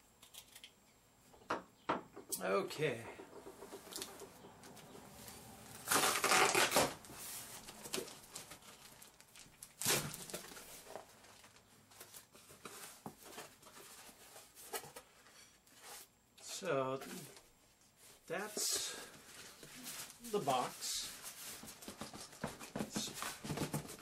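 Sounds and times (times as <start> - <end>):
cardboard and plastic rustling: 3.4 - 16.1, 17.0 - 24.0
cardboard tearing: 5.7 - 10.8.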